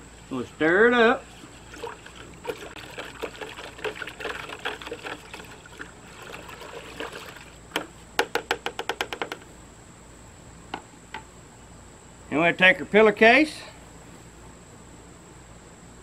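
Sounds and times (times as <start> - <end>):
liquid sloshing in a bucket: 1.2 - 7.9.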